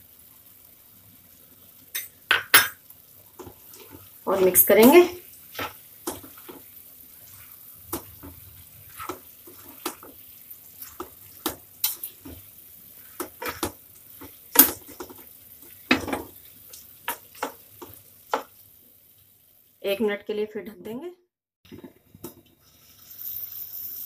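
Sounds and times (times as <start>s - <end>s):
spatula scraping pan: 3.4s - 16.4s.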